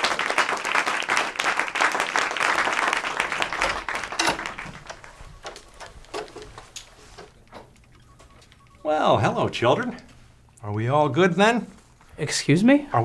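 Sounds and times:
people clapping: 0:00.0 - 0:06.2.

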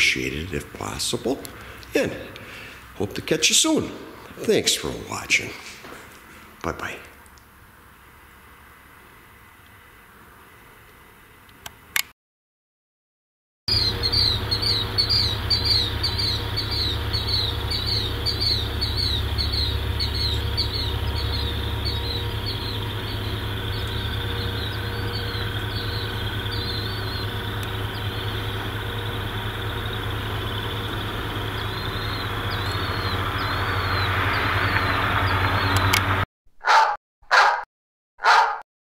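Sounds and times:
bird chirping rapidly: 0:13.7 - 0:35.9
steady low rumble: 0:13.7 - 0:36.2
clicks: 0:27.6 - 0:27.8.

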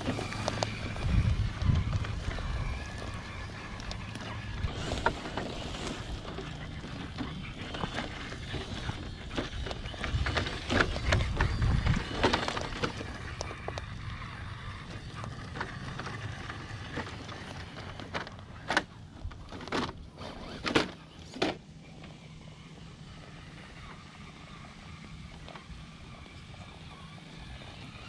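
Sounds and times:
wind rumbling on microphone: 0:00.0 - 0:18.1
tyres scraping on rock: 0:00.0 - 0:21.6.

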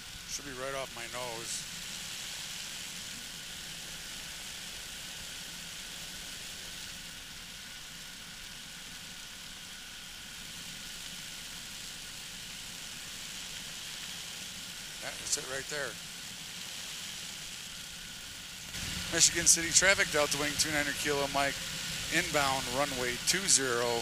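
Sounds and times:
microlight engine and propeller droning: 0:00.0 - 0:24.0.

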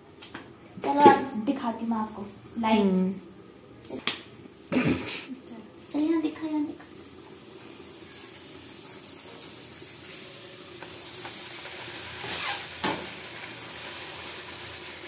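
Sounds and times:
dough deep-frying in oil: 0:05.8 - 0:15.0.

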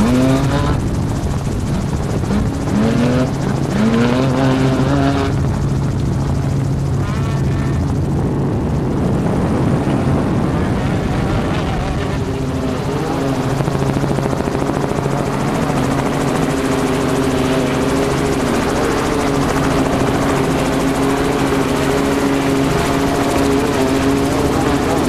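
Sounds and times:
helicopter engine drone: 0:00.0 - 0:25.0
rotor blades beating: 0:00.0 - 0:25.0.

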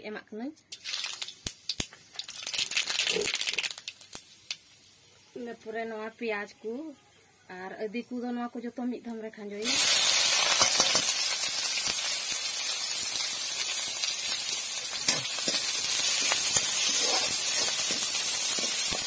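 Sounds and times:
onion frying in hot oil: 0:00.7 - 0:06.5, 0:09.6 - 0:19.0.

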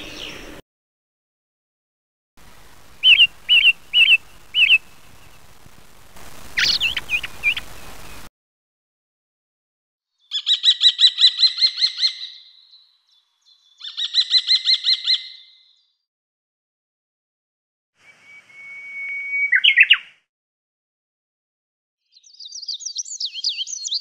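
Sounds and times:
bird chirps: 0:00.0 - 0:00.6, 0:03.0 - 0:05.4, 0:06.6 - 0:08.3, 0:10.1 - 0:16.0, 0:18.0 - 0:20.2, 0:22.0 - 0:24.0
light hiss: 0:02.4 - 0:08.3
bird gliding notes: 0:02.9 - 0:05.4
bird trills: 0:03.0 - 0:04.9, 0:06.6 - 0:07.6, 0:10.2 - 0:15.8.

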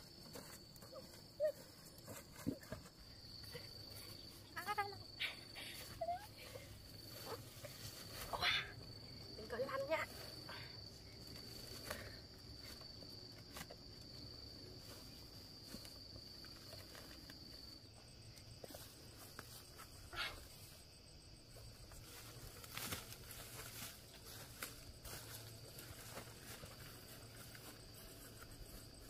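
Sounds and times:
footsteps through grass: 0:00.0 - 0:09.0, 0:21.6 - 0:29.0
insect high-pitched calling: 0:00.0 - 0:12.8, 0:14.0 - 0:29.0
grass rustling: 0:00.0 - 0:29.0.

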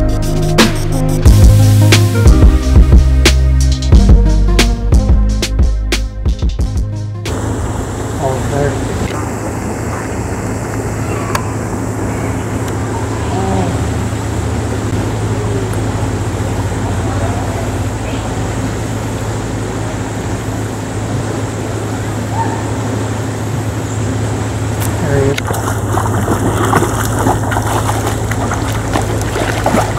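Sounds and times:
low outdoor hum: 0:07.2 - 0:29.9
faint distant voices: 0:08.2 - 0:19.1.

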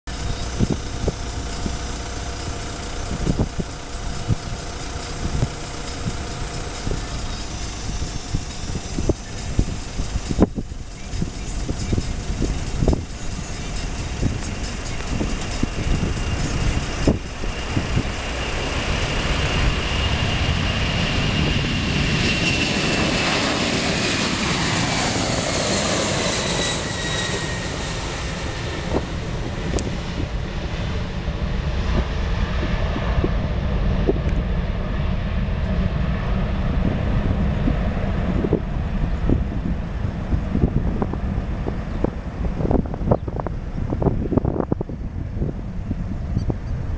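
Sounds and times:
jet plane taking off: 0:00.1 - 0:46.9.

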